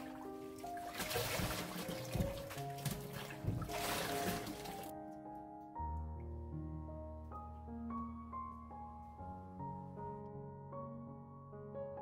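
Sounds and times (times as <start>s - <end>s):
background music with held notes: 0.0s - 12.0s
tap water splashing into bowl: 0.9s - 4.9s.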